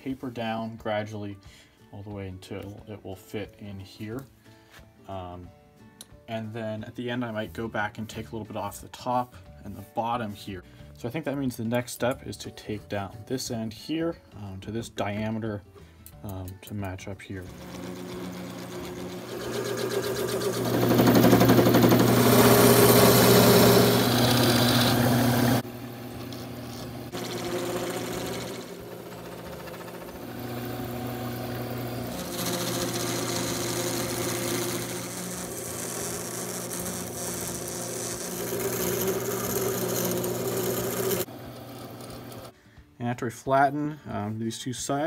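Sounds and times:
turning tool scraping wood: 0:17.4 - 0:42.5
wood lathe motor hum: 0:17.4 - 0:42.5.

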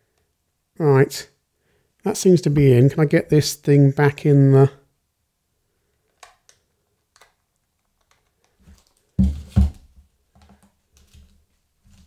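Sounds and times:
small plastic clicks and rustles: 0:05.9 - 0:09.2
heavy knocks on wooden table: 0:09.2 - 0:09.8.

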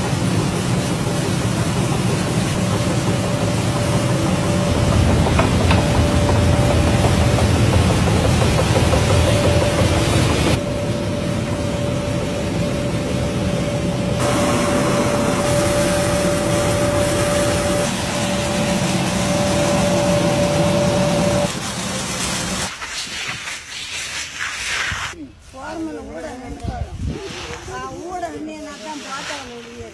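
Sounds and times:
vibrating sieve machine rattling: 0:00.8 - 0:10.6.

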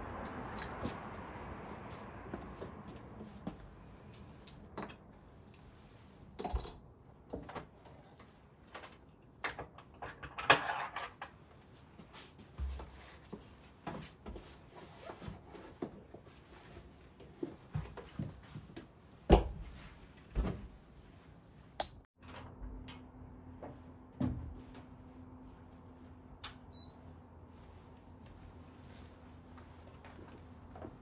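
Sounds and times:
keys jingling: 0:00.0 - 0:02.4, 0:03.2 - 0:06.8, 0:21.6 - 0:22.1.

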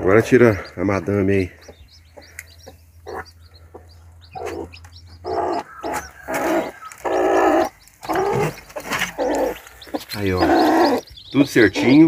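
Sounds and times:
chicks peeping: 0:00.0 - 0:12.0
hen giving harsh calls: 0:04.3 - 0:12.0.

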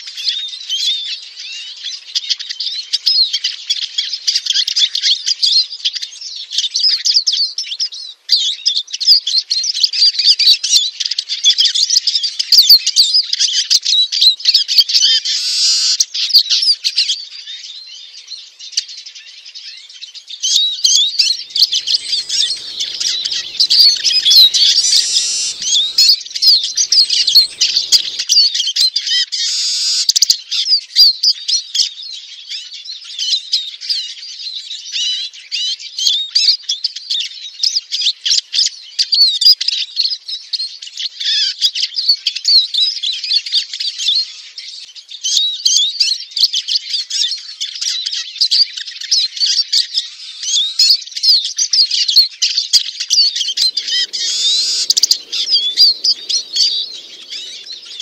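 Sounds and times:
bird twittering and chattering: 0:21.2 - 0:28.3, 0:53.4 - 0:58.0.

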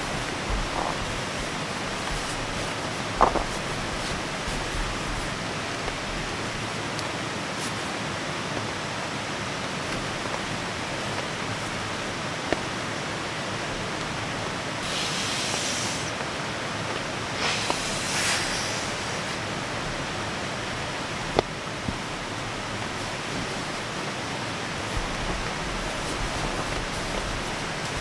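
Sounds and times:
fabric rustling: 0:00.0 - 0:08.0, 0:09.6 - 0:12.7, 0:21.1 - 0:28.0
heavy rain on a tent: 0:00.0 - 0:28.0.

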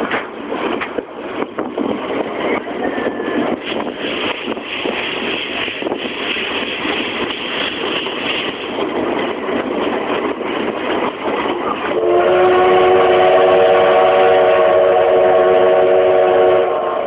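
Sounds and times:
train running noise: 0:00.0 - 0:17.0
train whistle blast: 0:11.9 - 0:17.0.

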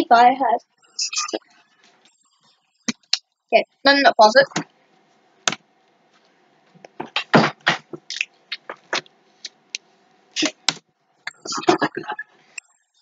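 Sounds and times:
beatboxing: 0:06.9 - 0:09.8, 0:10.4 - 0:10.7, 0:11.3 - 0:12.4.

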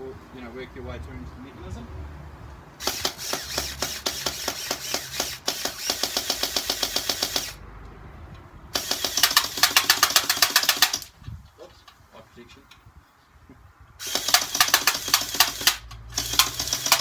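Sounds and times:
gel blaster firing full auto: 0:02.8 - 0:07.6, 0:08.8 - 0:11.1, 0:14.0 - 0:17.0.

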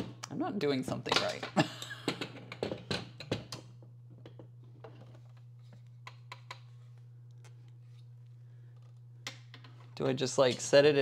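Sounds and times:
steady low hum: 0:00.0 - 0:11.0
table clicking and knocking: 0:01.2 - 0:05.1.

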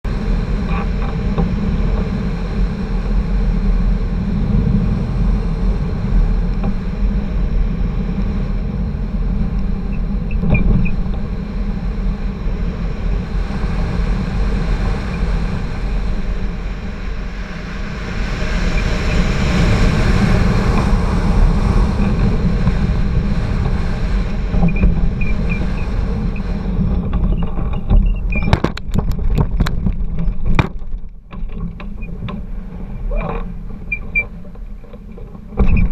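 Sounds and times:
wind buffeting microphone: 0:00.0 - 0:35.9
sharp knocks and rattles: 0:26.8 - 0:35.9.

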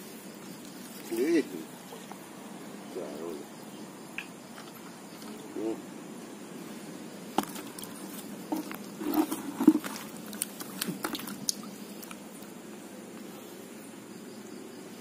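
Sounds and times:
small water splashes: 0:07.3 - 0:12.6
stones knocking in water: 0:07.4 - 0:07.9, 0:08.5 - 0:11.6.

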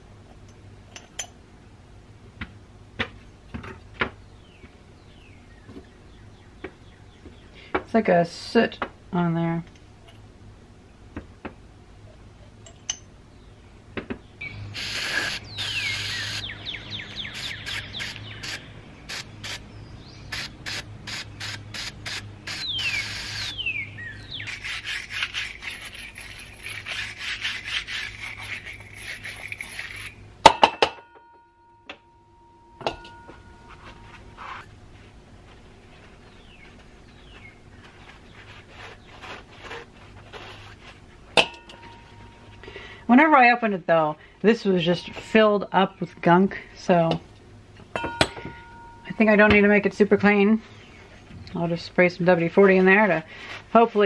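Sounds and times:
scrubbing metal parts: 0:24.4 - 0:30.2
sharp metal knocks: 0:47.9 - 0:49.6.

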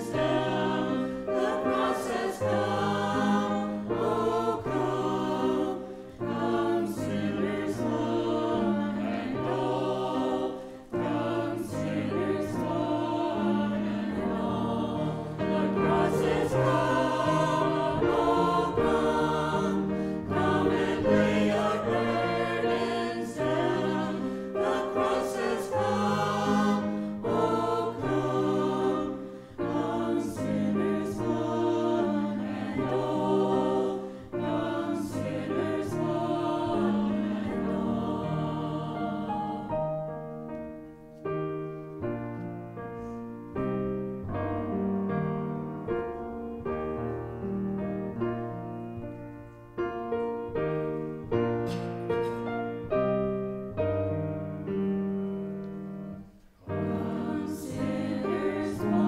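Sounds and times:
mixed choir singing: 0:00.0 - 0:40.0, 0:55.6 - 0:59.0.

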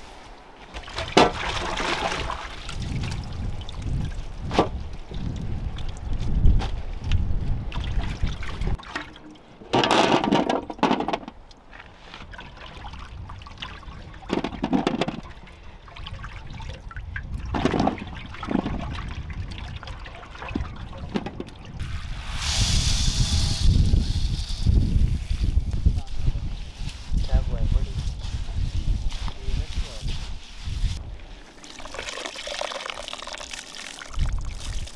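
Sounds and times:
water splashing in metal basin: 0:00.7 - 0:04.1, 0:07.7 - 0:09.4, 0:31.5 - 0:34.9.

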